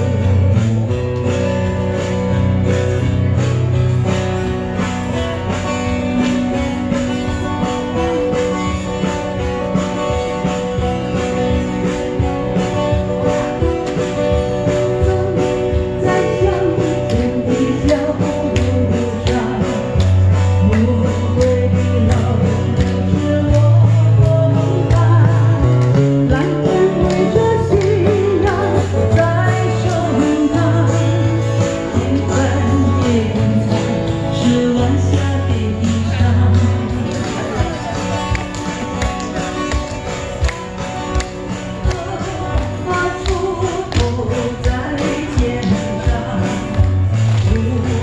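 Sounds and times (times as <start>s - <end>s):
guitar strumming: 0.0s - 48.0s
steady bass line: 0.0s - 48.0s
person singing: 12.7s - 38.2s, 41.6s - 48.0s.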